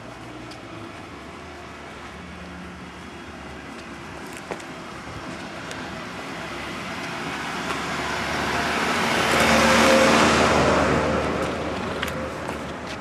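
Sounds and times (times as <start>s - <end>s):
car passing by: 6.3s - 13.0s.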